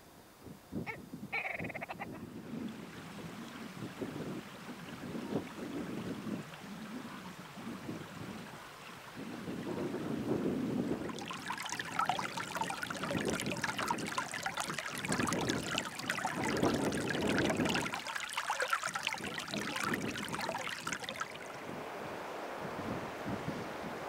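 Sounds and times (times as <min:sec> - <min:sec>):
wind on microphone: 0:00.4 - 0:24.0
stream trickling over stones: 0:10.8 - 0:21.8.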